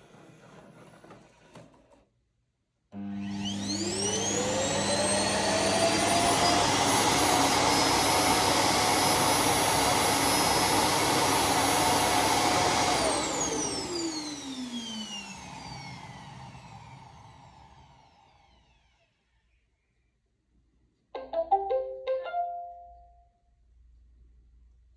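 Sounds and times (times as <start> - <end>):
vacuum motor whine: 3.0 - 19.5.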